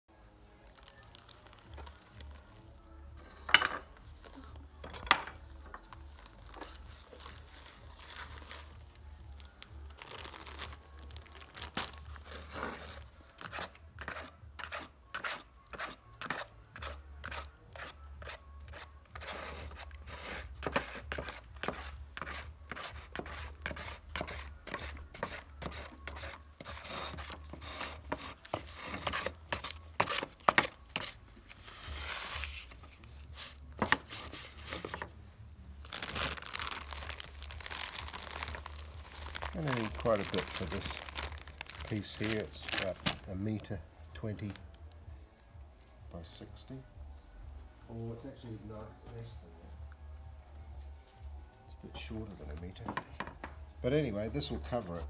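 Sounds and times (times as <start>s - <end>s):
paper bag rustling: 5.8s - 13.1s, 23.8s - 35.2s, 35.8s - 44.6s.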